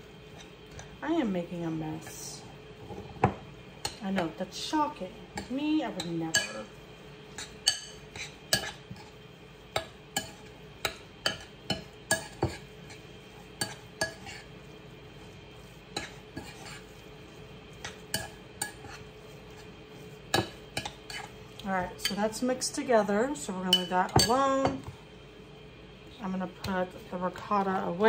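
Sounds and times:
spoon scraping ceramic bowl: 0:16.0 - 0:16.9.

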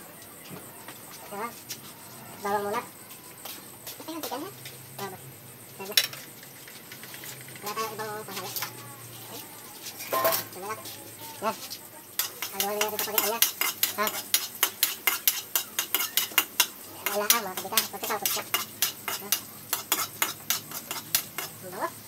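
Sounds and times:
food sizzling: 0:01.6 - 0:22.0
spatula scraping a steel wok: 0:09.9 - 0:22.0.

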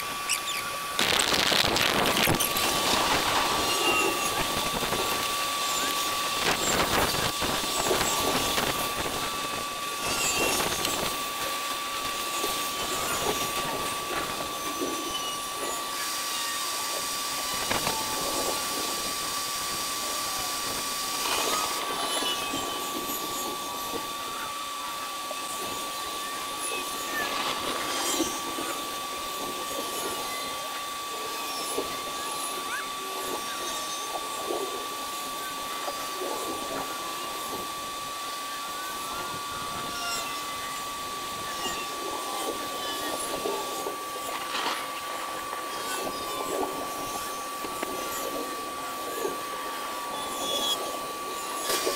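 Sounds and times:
steady high whine: 0:00.0 - 0:51.9
crackles and thumps: 0:01.0 - 0:03.6.

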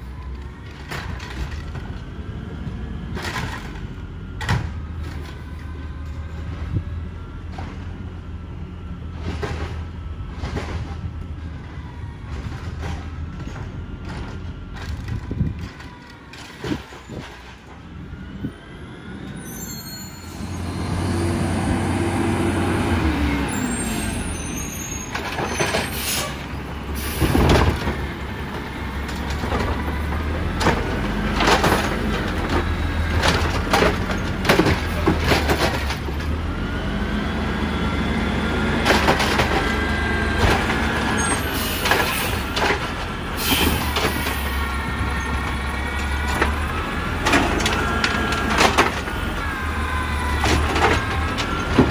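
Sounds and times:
clanks and bangs of cart and arm: 0:03.1 - 0:05.5, 0:09.1 - 0:11.2, 0:12.3 - 0:17.8, 0:27.2 - 0:36.4, 0:38.8 - 0:44.5, 0:47.2 - 0:49.2, 0:50.3 - 0:51.9
truck engine revving: 0:20.4 - 0:25.6, 0:26.4 - 0:51.9.

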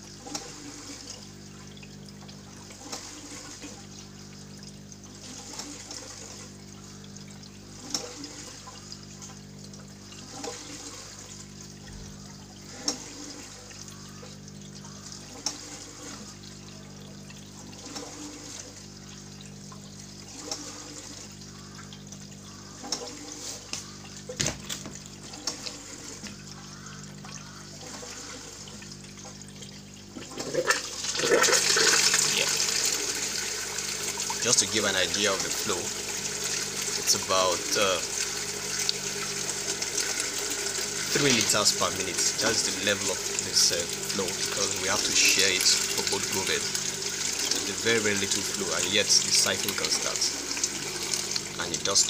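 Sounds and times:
water trickling and gurgling: 0:00.0 - 0:52.0
bubbles popping and dripping: 0:16.3 - 0:52.0.

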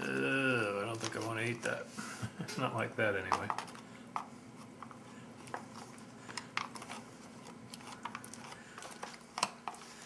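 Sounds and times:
spoon stirring in foil pouch: 0:03.2 - 0:10.0.

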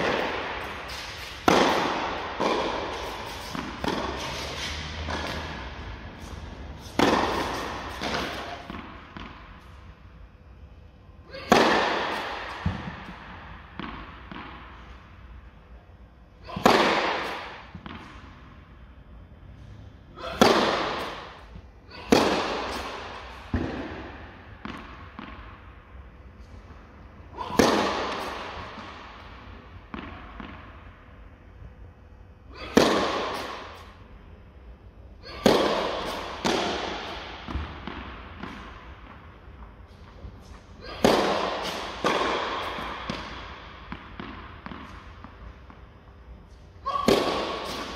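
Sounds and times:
tennis racket hitting ball: 0:00.0 - 0:09.4, 0:11.3 - 0:13.2, 0:16.5 - 0:18.1, 0:20.2 - 0:25.4, 0:27.4 - 0:29.0, 0:32.6 - 0:33.9, 0:35.2 - 0:39.2, 0:40.4 - 0:45.8, 0:46.9 - 0:47.9
ball bouncing: 0:35.4 - 0:39.2, 0:41.0 - 0:45.8.

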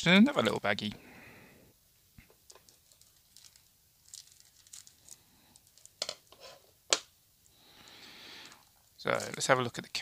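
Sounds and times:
soft rustle: 0:02.3 - 0:06.8
plastic bag crinkling: 0:02.5 - 0:06.3, 0:07.8 - 0:10.0.

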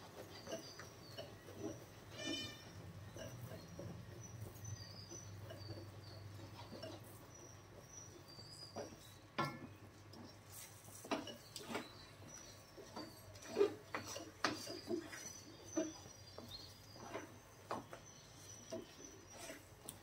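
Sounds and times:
wooden spatula scraping pan: 0:01.3 - 0:04.0, 0:12.8 - 0:19.8.

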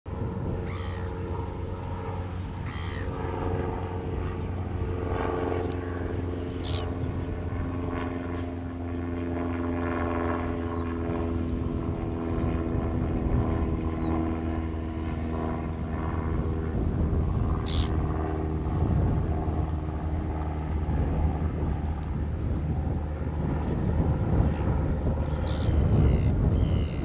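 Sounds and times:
low motor drone: 0:00.1 - 0:27.0
thin whistled calls: 0:06.0 - 0:06.9, 0:09.7 - 0:10.9, 0:12.8 - 0:14.2, 0:17.7 - 0:17.9, 0:25.3 - 0:27.0.

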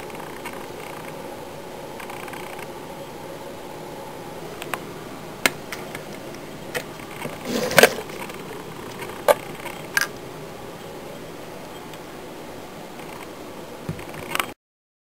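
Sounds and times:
faint steady hum: 0:00.0 - 0:14.6
short scrape ending in knock: 0:07.4 - 0:08.1.

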